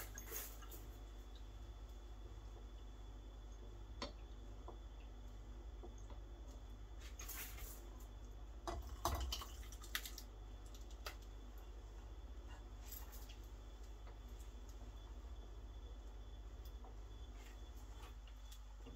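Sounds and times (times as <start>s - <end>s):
low steady hum: 0.0s - 18.9s
liquid pouring and splashing: 8.7s - 10.3s.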